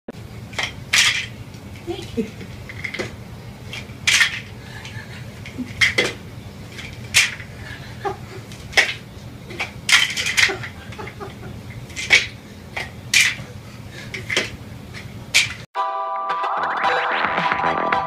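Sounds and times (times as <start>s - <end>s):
hard objects clinking together: 3.7s - 7.5s, 8.7s - 10.8s.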